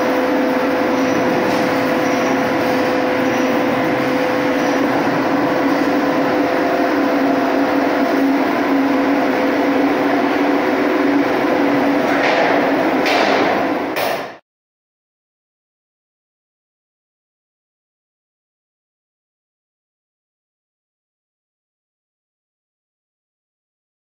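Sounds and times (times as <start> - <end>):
machinery hum: 0.0 - 14.4.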